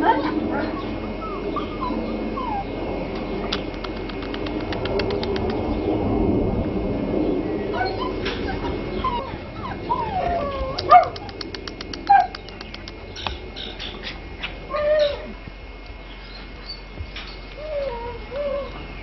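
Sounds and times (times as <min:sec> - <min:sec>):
puppy whimpering and yipping: 0:00.0 - 0:02.7, 0:07.7 - 0:11.3, 0:14.7 - 0:15.3, 0:17.6 - 0:18.8
quick run of ticks: 0:03.1 - 0:05.8, 0:10.6 - 0:13.9.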